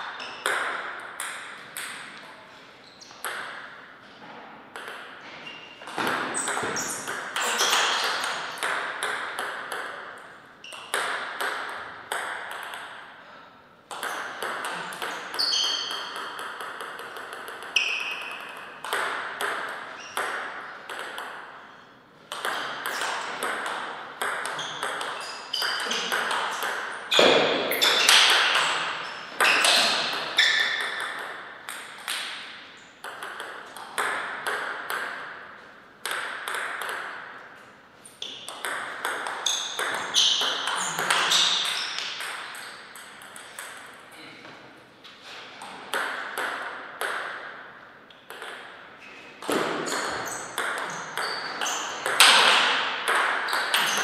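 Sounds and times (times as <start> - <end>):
ping pong ball clicking: 3.2 - 3.7, 4.7 - 5.2, 5.9 - 13.0, 13.9 - 21.4, 22.3 - 26.8, 29.4 - 35.3, 36.0 - 37.2, 38.2 - 44.0, 45.9 - 47.5, 48.1 - 48.7, 49.5 - 54.0.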